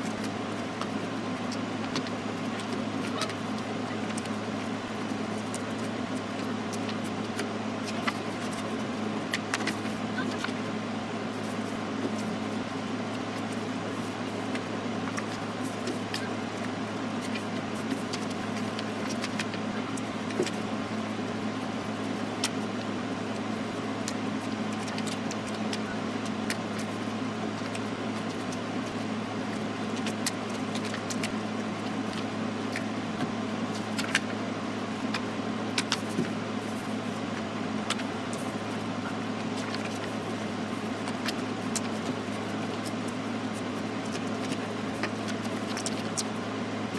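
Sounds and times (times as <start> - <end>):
paper being folded and creased: 0.0 - 10.6, 13.4 - 21.1, 37.9 - 46.4
steady low hum: 0.0 - 46.9.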